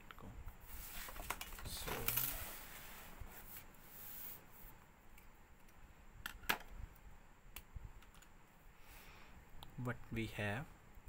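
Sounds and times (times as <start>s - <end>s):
paper rustling and sliding: 0.7s - 4.4s.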